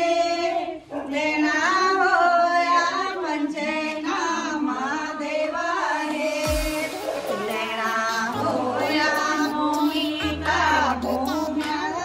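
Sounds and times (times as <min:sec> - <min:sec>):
woman singing long held notes: 0:03.2 - 0:12.0
light backing music: 0:05.9 - 0:12.0.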